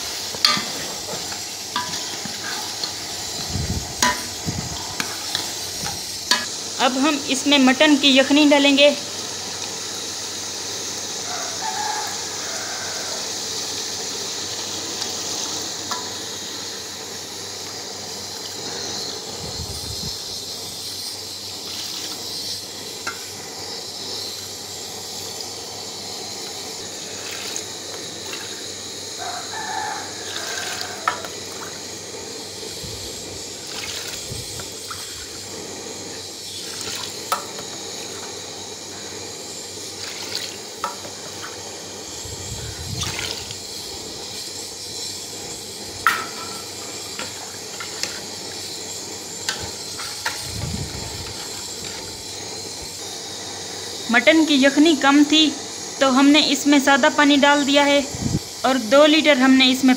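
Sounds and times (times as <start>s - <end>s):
liquid pouring and splashing: 21.7s - 22.2s, 27.0s - 28.6s, 33.6s - 35.4s, 36.6s - 38.3s, 39.9s - 41.6s, 42.7s - 43.6s.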